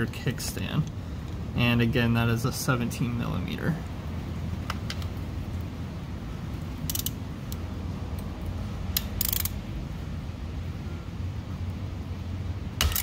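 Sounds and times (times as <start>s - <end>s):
steady low hum: 0.0s - 13.0s
ratchet wrench clicking: 6.8s - 7.2s, 8.9s - 9.6s, 12.8s - 13.0s.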